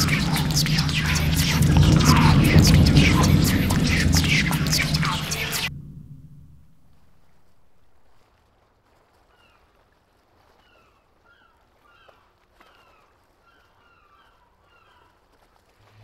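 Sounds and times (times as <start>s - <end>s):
low outdoor hiss: 0.0s - 8.2s.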